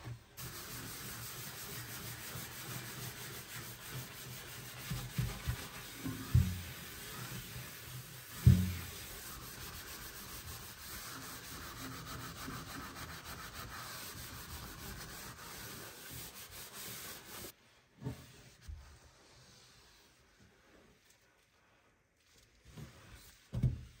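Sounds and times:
hand scrubbing oven walls: 0:00.0 - 0:17.5.

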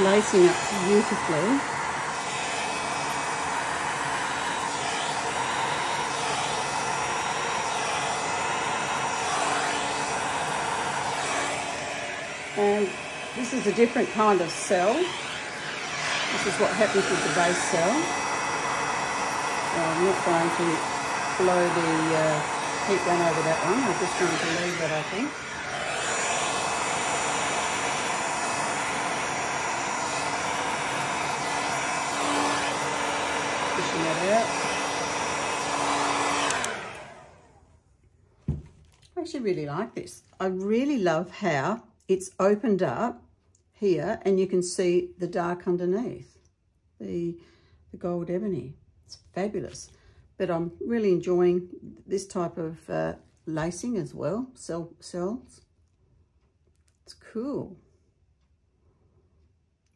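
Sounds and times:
heat gun blowing: 0:00.0 - 0:37.7.

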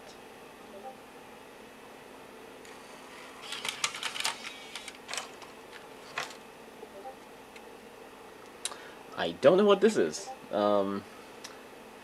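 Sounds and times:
disc drive whine: 0:00.0 - 0:12.0
disc drive mechanical clicks: 0:02.7 - 0:06.4.

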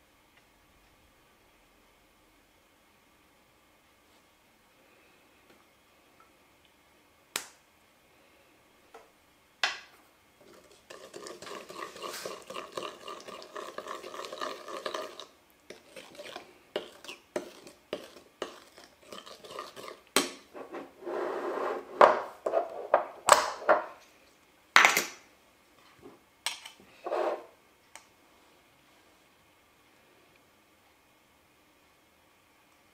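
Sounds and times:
dishes rattling and scraping: 0:10.4 - 0:15.2, 0:21.7 - 0:24.0.

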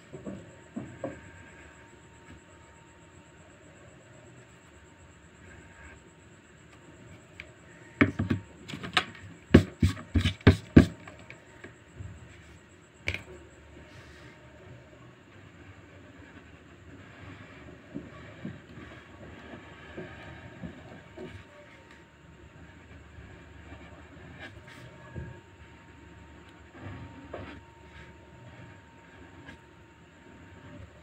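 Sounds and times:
pens knocking on wooden board: 0:08.0 - 0:11.2
felt-tip pen scratching paper: 0:09.5 - 0:11.0.

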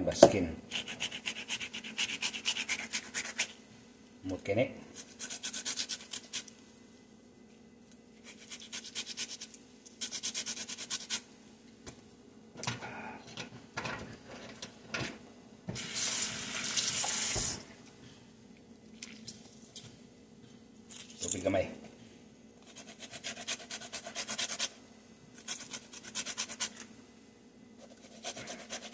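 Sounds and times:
lemon rasping on grater: 0:27.8 - 0:28.9.

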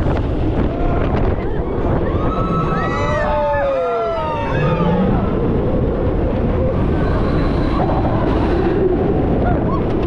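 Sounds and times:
roller coaster train rushing: 0:00.0 - 0:10.0.

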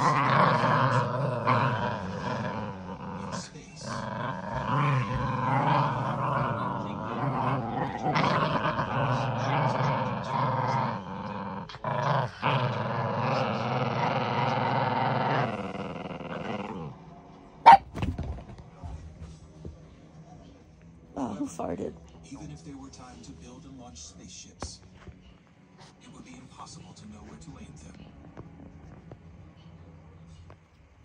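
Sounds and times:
puppies growling: 0:00.0 - 0:18.3.

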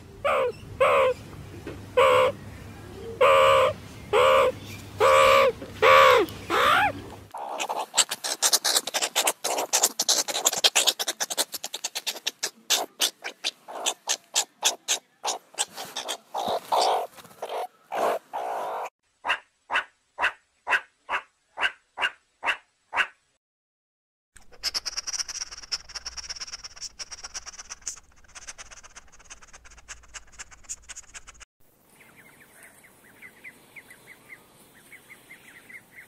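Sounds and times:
meerkats high calls: 0:00.2 - 0:01.2, 0:02.0 - 0:02.4, 0:03.2 - 0:23.1
meerkats clicking and chirping: 0:03.2 - 0:18.9, 0:24.4 - 0:31.4.

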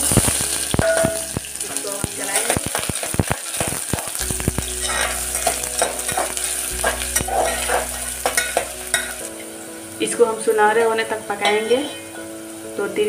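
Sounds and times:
onion sizzling in hot oil: 0:00.0 - 0:13.0
spatula scraping metal pot: 0:00.2 - 0:09.3.

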